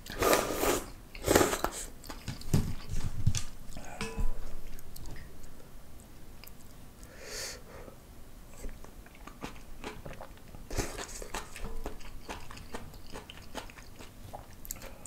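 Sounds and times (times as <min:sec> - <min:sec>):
person slurping noodles: 0:00.0 - 0:01.9, 0:09.4 - 0:11.6
chewing and wet mouth clicks: 0:08.6 - 0:15.0.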